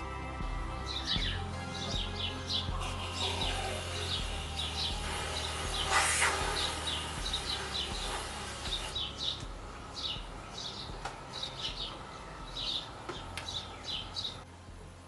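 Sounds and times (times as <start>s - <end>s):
birds chirping: 0.0s - 15.0s
aerosol spray hiss: 2.8s - 9.5s.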